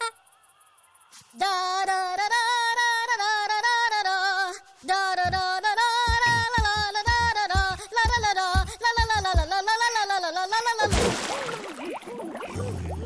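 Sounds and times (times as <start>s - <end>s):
low thumps: 5.2s - 9.6s
cartoon character singing high tune: 5.2s - 10.9s.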